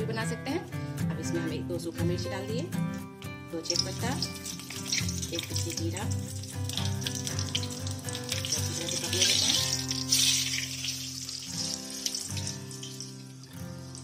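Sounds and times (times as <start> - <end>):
background music: 0.0 - 14.0
spices sizzling in hot oil: 3.2 - 14.0.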